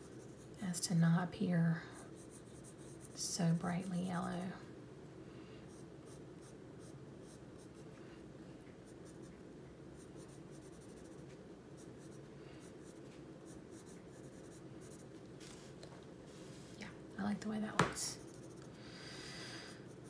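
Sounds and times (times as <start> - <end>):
pencil scratching on paper: 0.0 - 0.6, 2.0 - 4.1, 10.0 - 11.2, 11.8 - 15.1, 18.2 - 18.7
faint low hum: 0.0 - 20.0.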